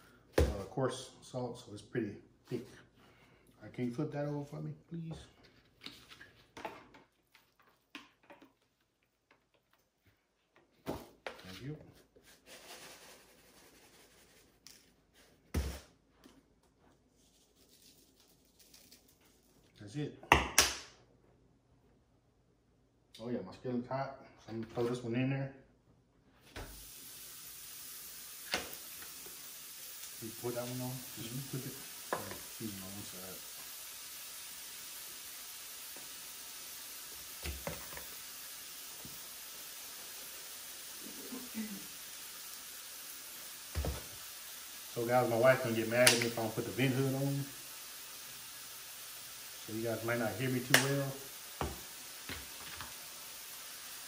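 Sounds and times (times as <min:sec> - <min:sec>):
box thump on countertop: 0:00.4 - 0:00.6, 0:43.7 - 0:44.1
patty sizzling in a skillet: 0:11.4 - 0:15.8, 0:17.2 - 0:19.7, 0:26.4 - 0:54.0
seasoning shaken onto meat: 0:12.3 - 0:14.6, 0:17.2 - 0:19.6.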